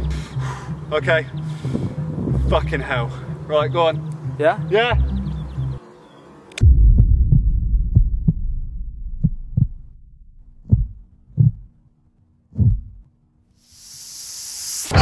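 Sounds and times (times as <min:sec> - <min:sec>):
heartbeat thumping: 0:06.6 - 0:11.8, 0:12.5 - 0:13.1.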